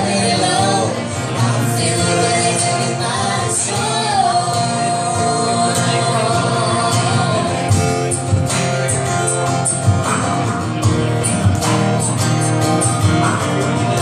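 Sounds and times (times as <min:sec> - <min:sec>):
woman singing: 0:00.0 - 0:08.1
acoustic guitar strumming: 0:00.0 - 0:14.0.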